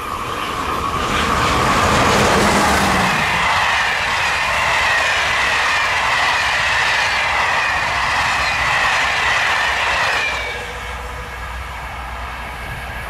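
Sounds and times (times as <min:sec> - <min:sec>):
train wheels rushing on rail: 0:00.0 - 0:13.0
faint high whine: 0:03.1 - 0:13.0.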